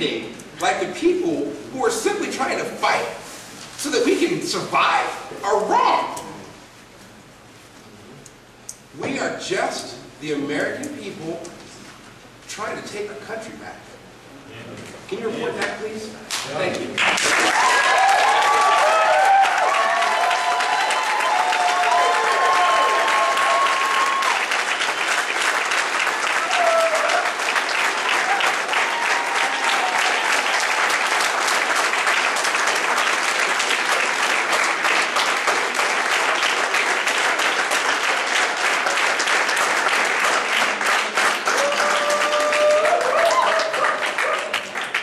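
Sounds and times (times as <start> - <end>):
audience applauding: 16.9 - 45.0.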